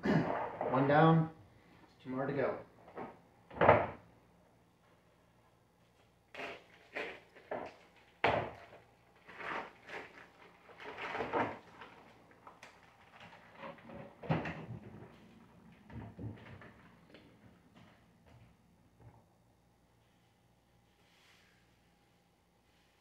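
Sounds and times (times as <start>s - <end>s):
plastic packaging rustling: 6.4s - 13.9s.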